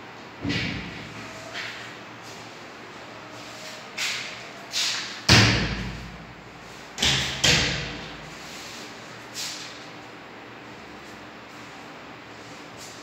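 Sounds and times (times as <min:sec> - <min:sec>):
sharp knocks echoing in room: 0:00.4 - 0:01.0, 0:05.0 - 0:06.4, 0:07.0 - 0:08.2.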